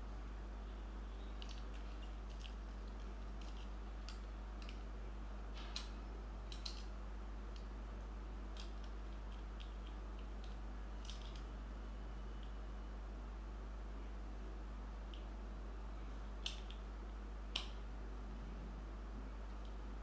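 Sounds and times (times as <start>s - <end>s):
low electrical hum: 0.0s - 20.0s
light plastic clicks: 17.5s - 17.8s.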